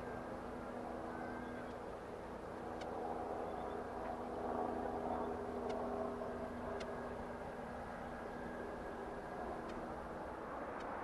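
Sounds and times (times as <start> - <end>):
engine hum with held tones: 0.0 - 11.0
faint high ticks: 2.8 - 3.0, 5.6 - 5.8, 6.8 - 7.0, 9.6 - 9.8, 10.8 - 11.0.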